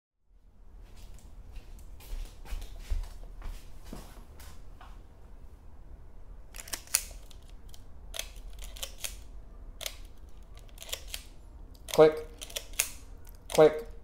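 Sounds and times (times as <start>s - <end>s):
film advance lever winding: 6.6s - 13.7s
camera shutter clicking: 6.6s - 13.8s.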